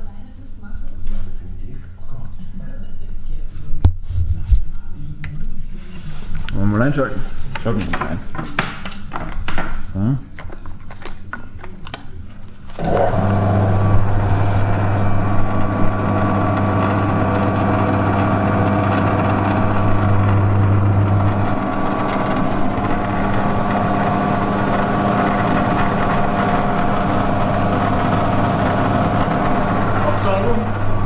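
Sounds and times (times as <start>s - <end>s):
drum sander motor humming: 12.8s - 31.0s.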